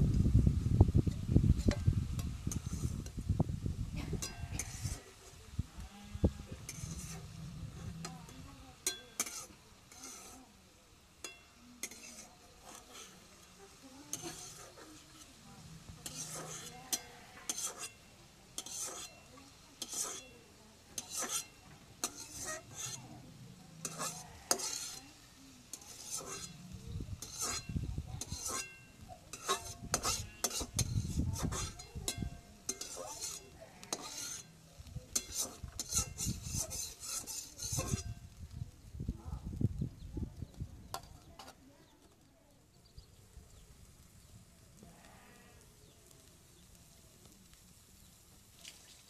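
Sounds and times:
light sizzle: 0.0s - 49.0s
spoon scraping a cooking pot: 1.2s - 3.2s, 4.2s - 5.2s, 6.5s - 10.5s, 11.2s - 38.4s, 40.4s - 42.2s.

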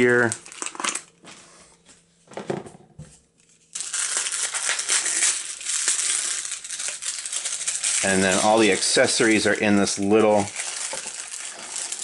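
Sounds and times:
packaging crinkling: 0.0s - 1.3s, 3.4s - 12.0s.

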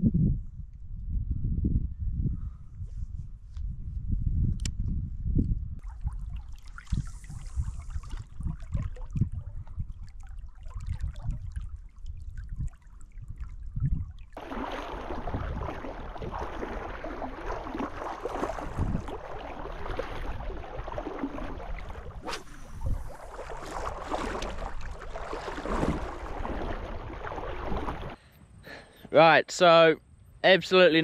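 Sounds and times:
wind rumbling on microphone: 0.0s - 28.8s
water sloshing from wading: 5.8s - 28.2s.

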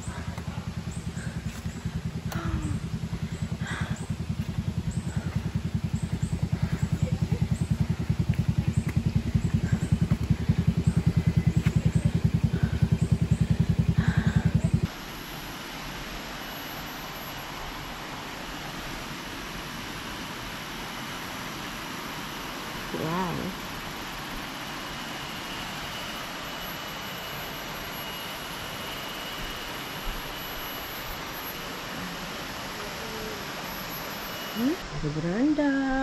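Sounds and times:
engine labouring at low revs: 0.0s - 15.0s
outdoor hiss: 14.9s - 36.0s.

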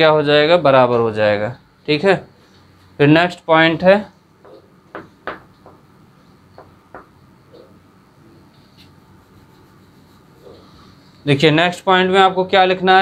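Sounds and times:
chalk tapping and scratching: 8.5s - 11.2s.

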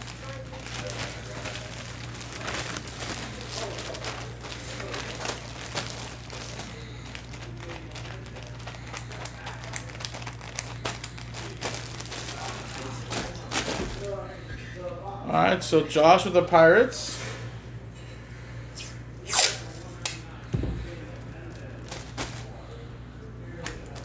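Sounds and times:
plastic bag crinkling: 0.0s - 14.3s, 19.3s - 22.8s, 23.5s - 24.0s.

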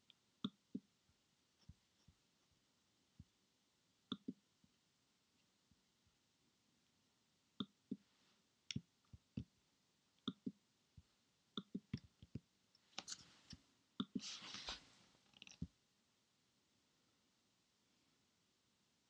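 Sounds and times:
rustling: 14.2s - 15.7s
mouse and keyboard clicks: 15.3s - 15.7s.

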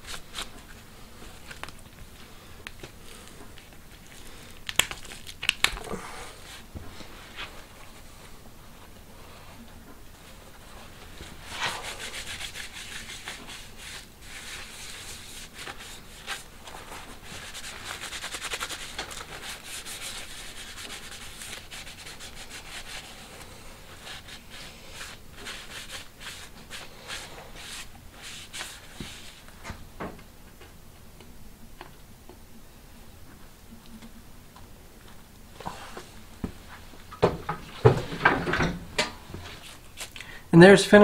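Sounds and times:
bristle brush scrubbing leather: 10.8s - 29.4s.

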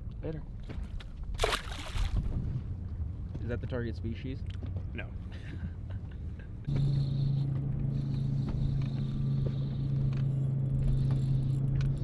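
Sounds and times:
boat motor humming: 4.6s - 12.0s.

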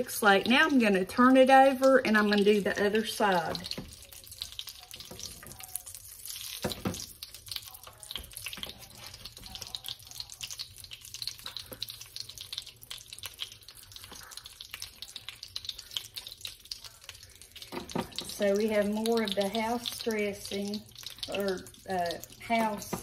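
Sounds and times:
sugar sizzling in a pan: 0.0s - 23.0s.

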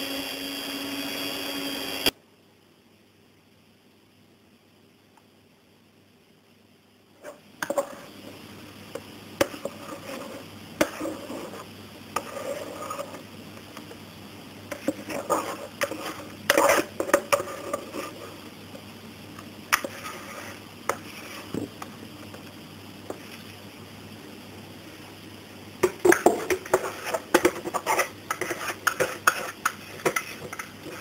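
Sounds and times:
spatula scraping batter from bowl: 12.2s - 13.2s, 26.6s - 31.0s.

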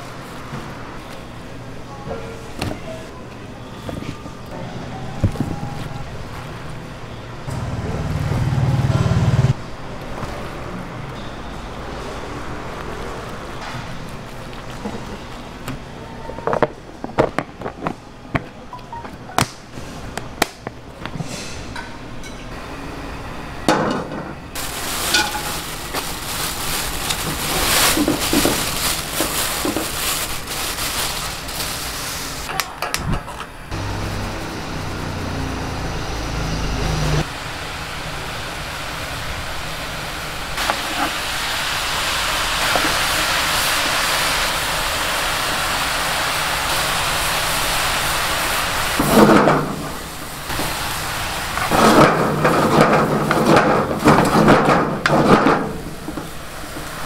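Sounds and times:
vegetables sizzling in oil: 24.6s - 32.4s, 37.5s - 52.5s.

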